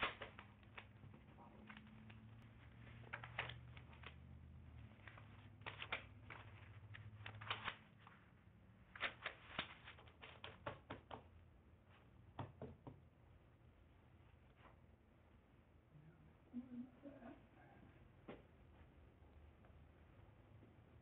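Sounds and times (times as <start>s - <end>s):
paper rustling: 0.0s - 11.2s.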